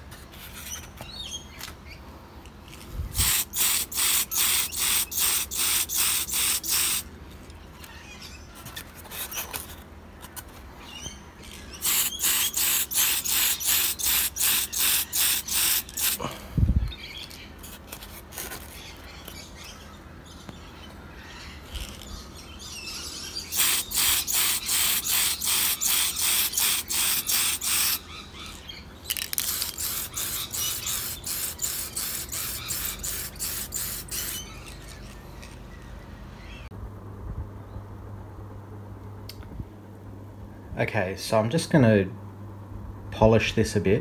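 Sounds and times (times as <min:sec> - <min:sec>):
spray can hissing bursts: 0:03.1 - 0:07.1, 0:11.8 - 0:16.2, 0:23.5 - 0:28.0, 0:29.1 - 0:34.4.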